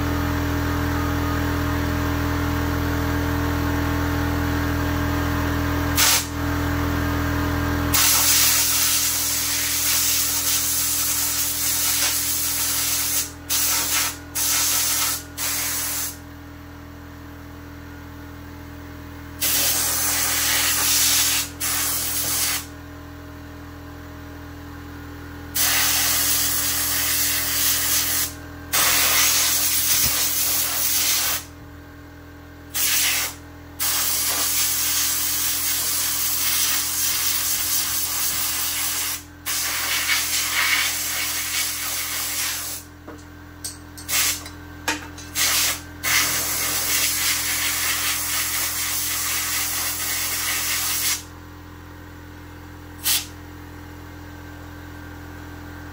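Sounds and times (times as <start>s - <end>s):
compressed air hissing bursts: 6.0s - 6.3s, 7.9s - 16.2s, 19.4s - 22.7s, 25.6s - 31.5s, 32.8s - 35.1s, 35.7s - 42.9s, 44.1s - 44.4s, 45.4s - 51.2s, 53.0s - 53.3s.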